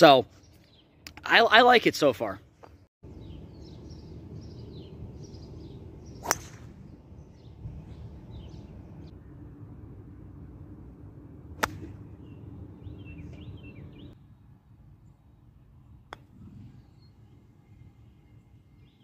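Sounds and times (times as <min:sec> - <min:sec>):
golf iron striking ball: 0:06.1 - 0:06.8, 0:11.6 - 0:12.0
golf driver striking ball: 0:06.2 - 0:06.7.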